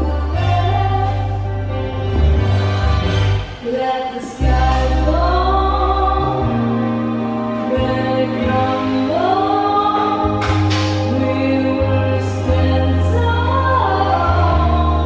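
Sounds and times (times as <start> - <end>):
deep bass notes: 0.0 - 3.6, 4.4 - 15.0.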